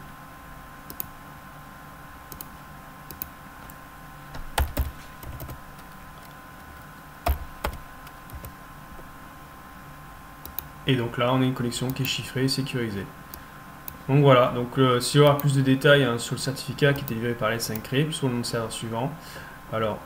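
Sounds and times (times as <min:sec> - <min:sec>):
faint hum: 0:00.0 - 0:20.0
keyboard keystrokes and clicks: 0:00.9 - 0:01.1, 0:03.1 - 0:08.6, 0:10.4 - 0:10.7.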